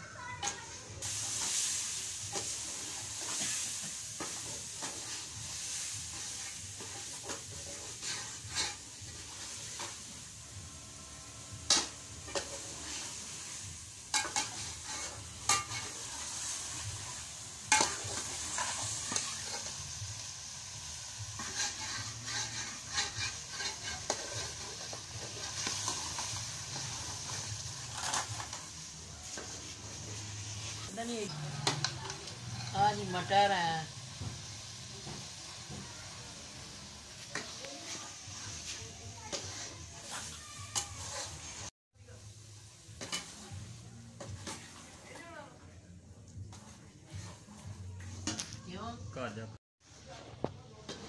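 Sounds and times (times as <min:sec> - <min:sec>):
meat sizzling in a pot: 0:00.0 - 0:51.0
spoon scraping a pot: 0:06.1 - 0:09.8, 0:21.4 - 0:28.6, 0:37.3 - 0:41.7.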